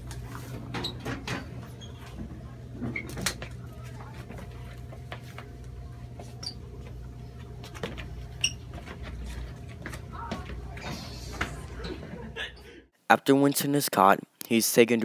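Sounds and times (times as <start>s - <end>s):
steady low hum: 0.0s - 12.9s
footsteps and shuffling: 1.6s - 12.8s.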